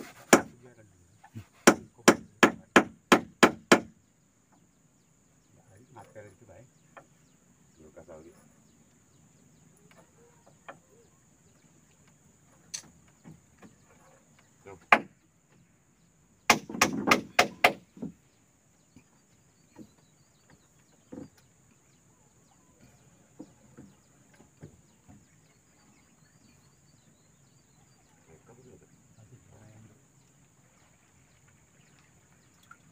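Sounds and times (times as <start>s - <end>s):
knocks on wood: 0.1s - 0.5s, 1.6s - 3.9s, 16.5s - 18.2s.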